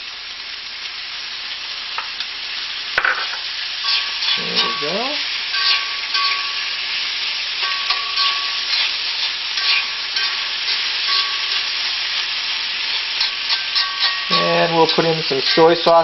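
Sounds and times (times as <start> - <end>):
food sizzling in a wok: 0.0 - 16.0
chopsticks scraping a pan: 3.2 - 16.0.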